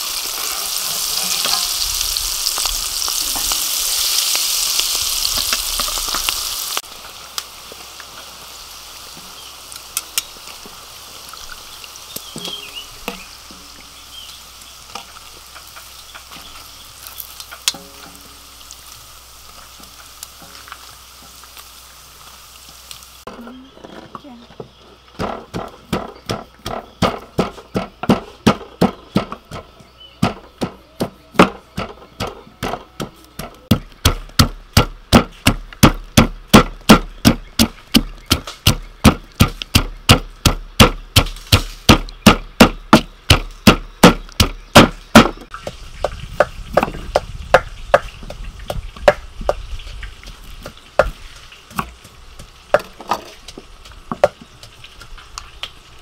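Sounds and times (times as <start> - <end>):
pestle pounding in wooden mortar: 25.2 - 55.2.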